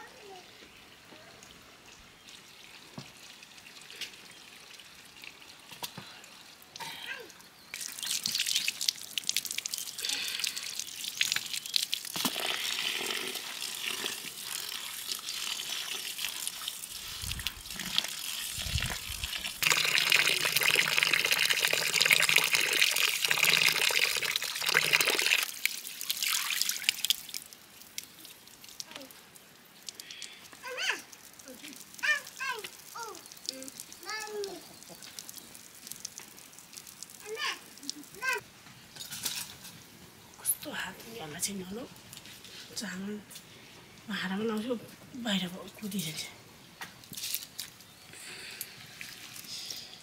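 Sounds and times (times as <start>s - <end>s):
tap water splashing into basin: 7.7s - 9.8s.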